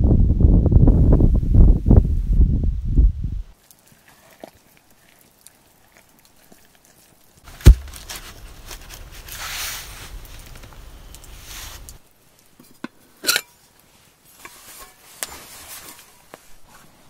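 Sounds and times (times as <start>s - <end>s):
wood fire crackling: 3.5s - 17.0s
log rustling: 3.6s - 12.6s
log thumping on ground: 7.5s - 8.4s.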